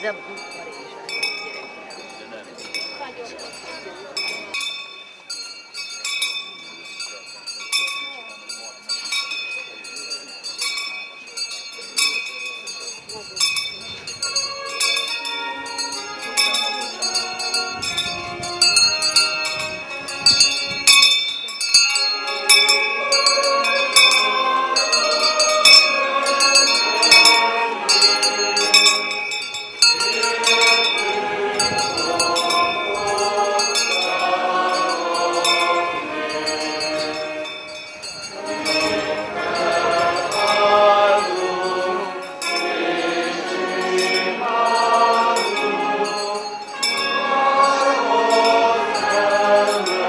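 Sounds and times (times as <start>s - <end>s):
small bells jingling: 0.0s - 50.0s
choir singing a hymn: 14.3s - 20.8s, 21.9s - 50.0s.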